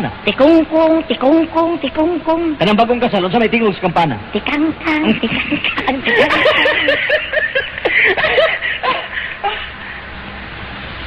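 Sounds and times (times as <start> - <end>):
person laughing high-pitched: 5.0 - 9.8.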